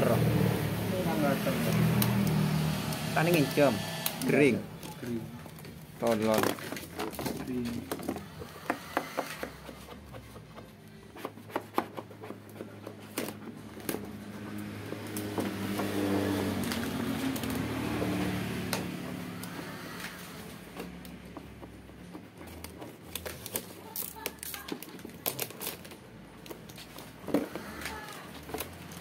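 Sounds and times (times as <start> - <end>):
low motor hum: 0.0 - 5.9, 13.5 - 22.1
vinyl film clicks and crinkles: 22.4 - 29.0.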